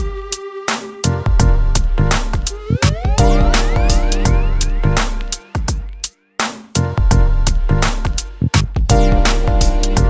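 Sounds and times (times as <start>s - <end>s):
sustained chords: 1.1s - 5.7s
drum hits: 1.4s - 6.0s.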